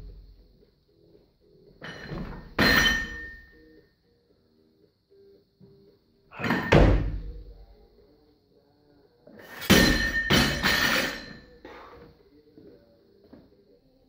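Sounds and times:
barbell crashing onto floor: 6.4 - 7.3, 9.6 - 11.4.

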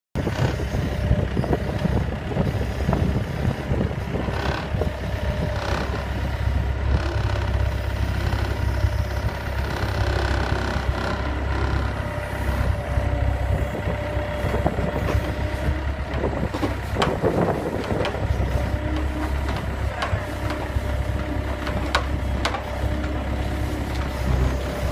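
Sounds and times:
loader engine rumbling: 0.2 - 24.9
scattered knocks: 16.1 - 23.2.

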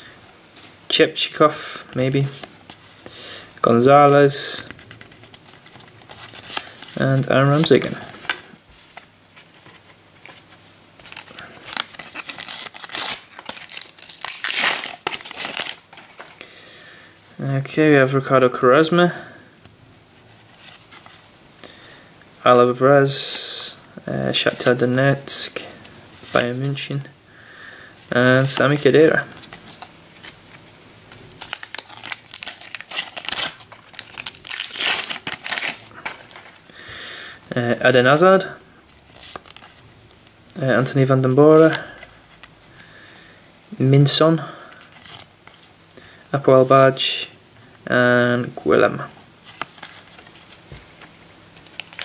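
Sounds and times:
foil wrappers crinkling: 2.1 - 16.4, 28.1 - 37.5, 39.0 - 40.3, 49.1 - 52.0
sticker wrappers crinkling and tearing: 11.0 - 16.4, 31.1 - 36.7, 39.0 - 40.3, 51.6 - 52.0.

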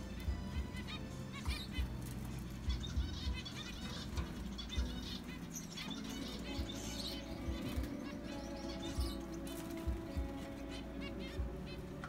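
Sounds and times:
finches chirping: 0.0 - 12.0.

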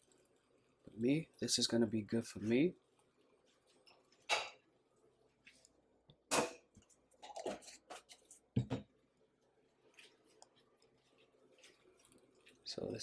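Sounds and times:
kitchen knocks and clatters: 3.9 - 4.6, 6.3 - 9.0.

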